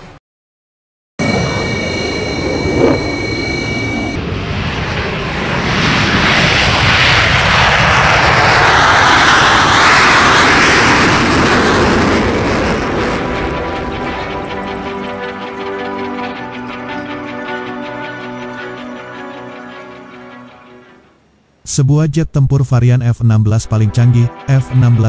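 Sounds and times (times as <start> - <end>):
jet engine rushing roar: 1.2 - 17.4
jet engine whine: 1.2 - 21.4.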